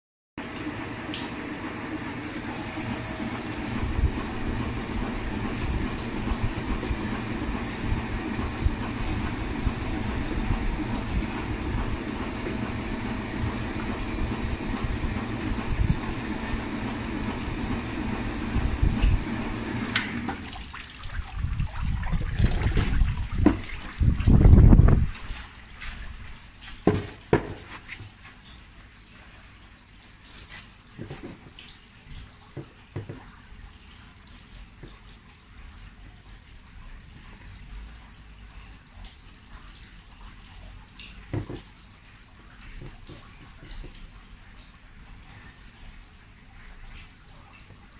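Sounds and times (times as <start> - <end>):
machine rumbling: 1.7 - 20.5, 21.3 - 25.3
low knocks and thumps: 22.0 - 25.2.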